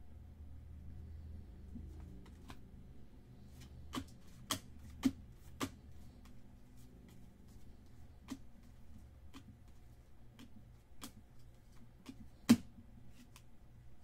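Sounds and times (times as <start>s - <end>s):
cards tapping on table: 3.9s - 5.8s.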